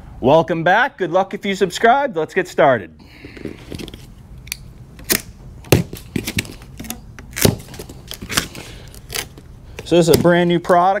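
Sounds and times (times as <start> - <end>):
plastic straps snapping: 4.4 - 10.4.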